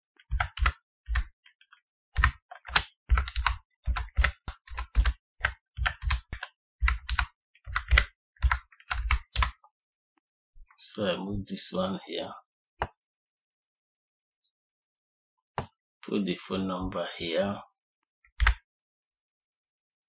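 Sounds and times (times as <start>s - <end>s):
typing on computer keyboard: 0.2s - 9.6s, 18.3s - 18.6s.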